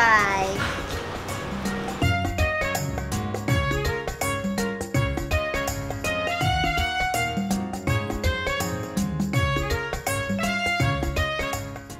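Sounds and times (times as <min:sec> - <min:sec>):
steady low noise: 0:00.4 - 0:02.3.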